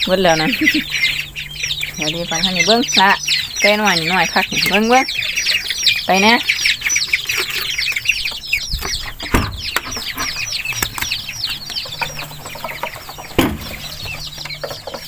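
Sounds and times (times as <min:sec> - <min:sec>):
ducklings peeping: 0:00.0 - 0:15.0
dull thumps: 0:11.9 - 0:15.0.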